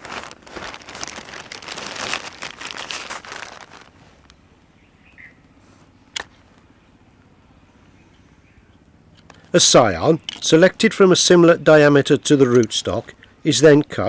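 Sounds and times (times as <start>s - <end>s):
wrapping crinkling and rustling: 0.0s - 4.4s
faint chirp: 4.7s - 5.5s.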